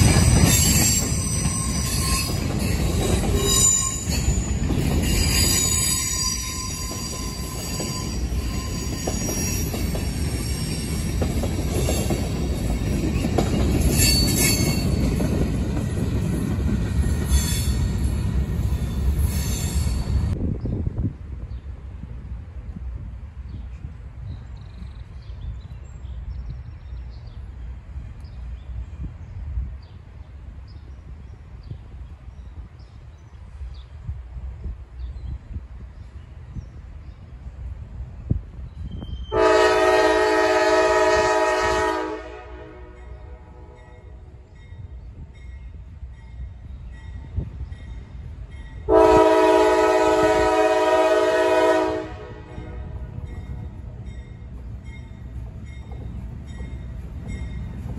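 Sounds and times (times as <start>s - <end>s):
locomotive rumble: 0.0s - 57.9s
songbirds chirping: 23.4s - 39.3s
locomotive air horn chord: 39.3s - 44.0s, 48.9s - 53.2s.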